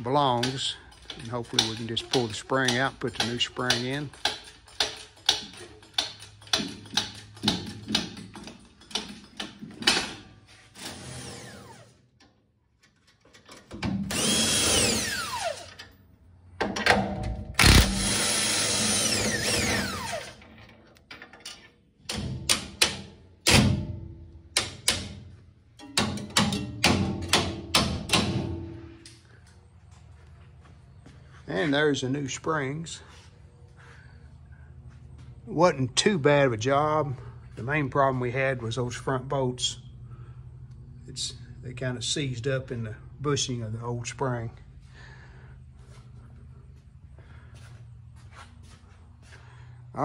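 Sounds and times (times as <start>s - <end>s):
metallic clicks and knocks: 0.3s - 10.3s, 24.5s - 29.2s
impact wrench whirring: 10.8s - 12.1s, 14.0s - 15.9s, 17.6s - 20.5s.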